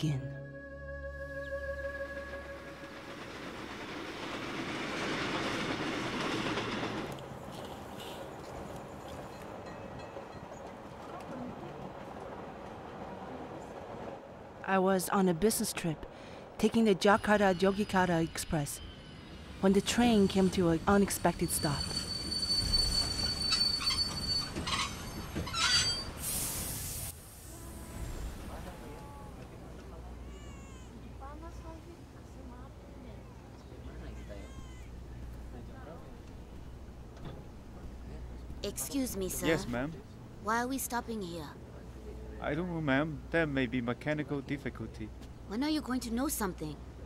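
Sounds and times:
train passing on rails: 1.6 - 30.1
train wheels squealing on rails: 17.0 - 26.6
hiss burst: 26.1 - 28.6.

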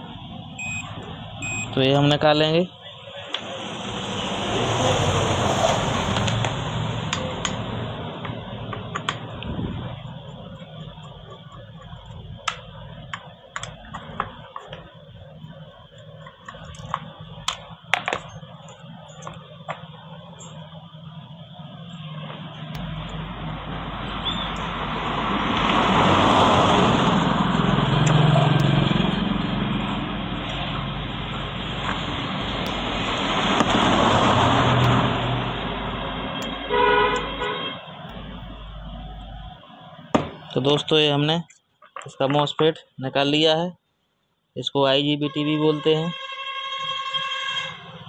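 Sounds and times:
broad background noise: 0.0 - 46.1
motor vehicle passing: 3.0 - 13.4, 17.0 - 40.8.

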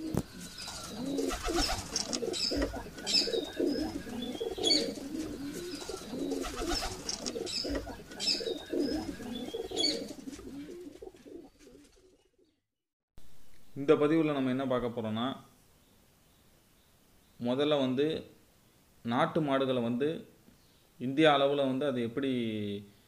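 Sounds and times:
pigeons cooing: 0.0 - 12.6.

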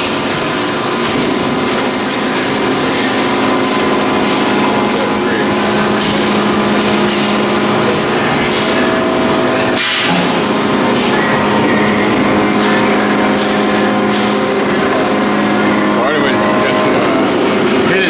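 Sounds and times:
machine hum: 0.0 - 18.0.

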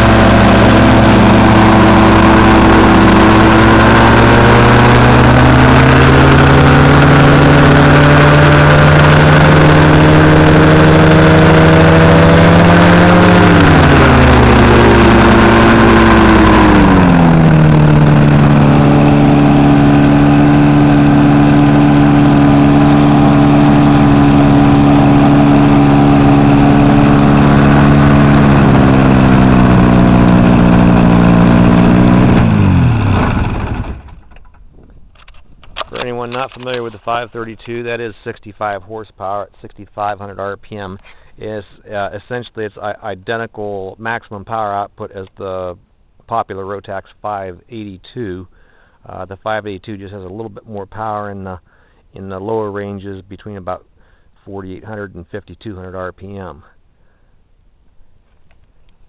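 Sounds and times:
two-stroke engine running: 0.0 - 34.6.

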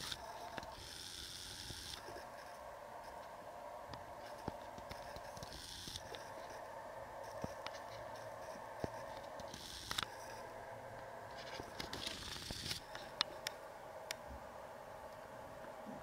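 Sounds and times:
faint background hum: 0.0 - 16.0
sharp clicks: 8.8 - 10.1.

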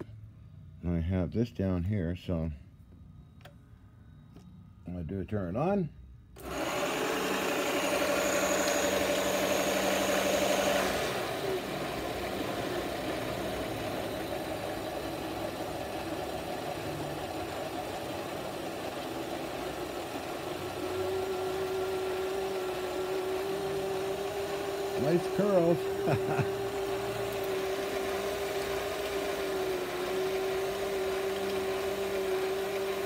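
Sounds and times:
lathe tool cutting metal: 6.4 - 16.9, 20.8 - 33.0
lathe motor humming: 6.4 - 33.0.

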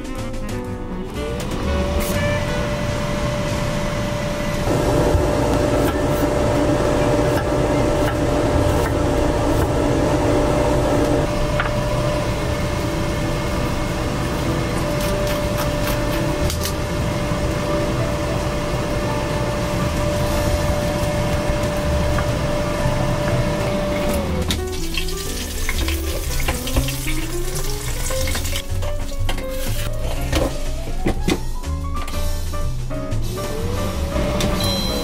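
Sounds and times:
air fryer fan whining: 0.8 - 35.0.

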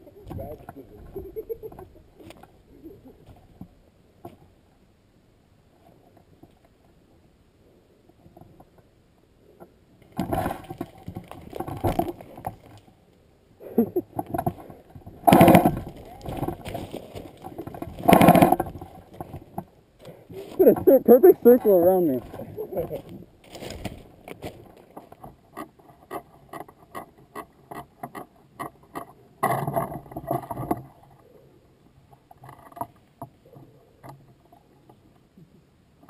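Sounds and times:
rustling through undergrowth: 13.8 - 26.2.

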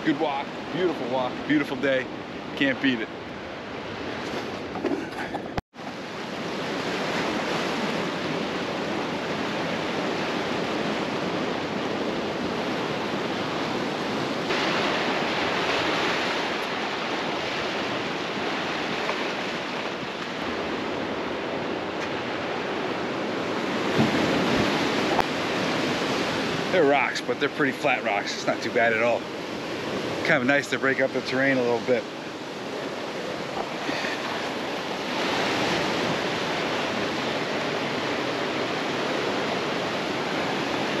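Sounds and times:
surf washing over rocks: 0.0 - 41.0
wind on microphone: 3.2 - 26.8.

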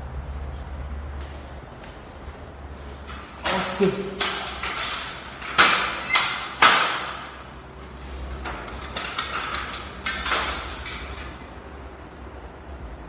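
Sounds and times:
aluminium ladder knocking: 3.0 - 7.5, 8.3 - 11.5.

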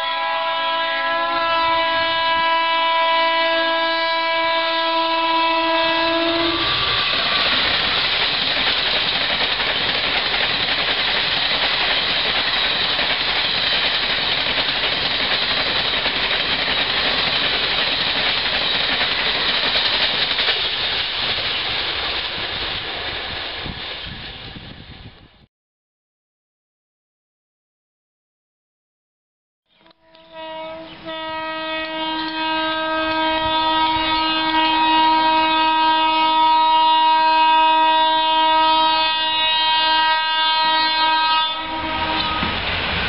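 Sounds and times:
train horn blast: 0.0 - 7.6, 29.9 - 42.6
train passing at speed: 0.0 - 25.5, 30.3 - 43.0.

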